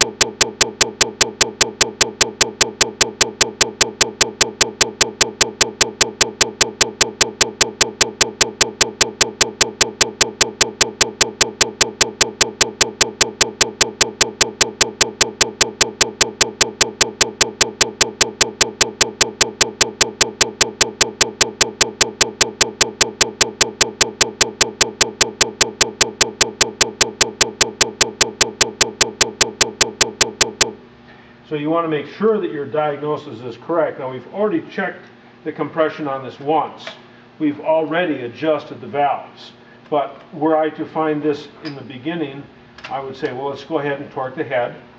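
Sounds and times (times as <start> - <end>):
glitchy repeating clicks: 0.0 - 30.8.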